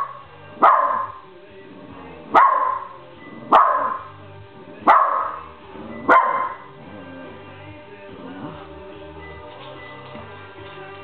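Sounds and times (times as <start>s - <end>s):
dog barking: 0.0s - 1.2s, 2.3s - 4.1s, 4.8s - 6.7s
pop music on radio: 0.0s - 11.0s.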